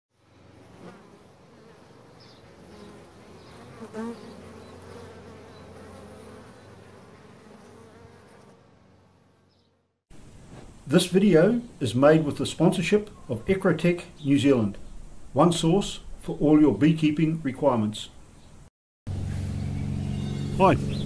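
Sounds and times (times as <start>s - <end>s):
bees buzzing: 0.2s - 9.9s.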